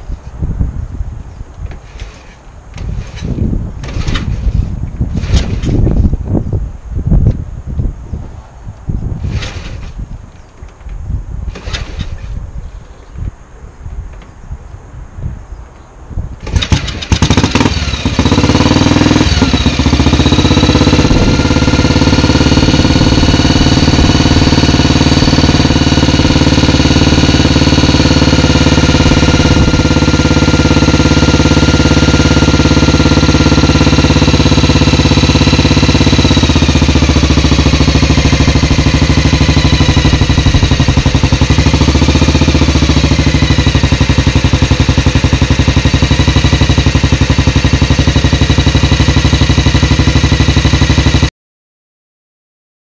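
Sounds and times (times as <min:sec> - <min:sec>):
motorcycle engine kick-started: 0:01.7 - 0:06.2, 0:09.2 - 0:10.1, 0:11.5 - 0:12.4, 0:16.4 - 0:51.3.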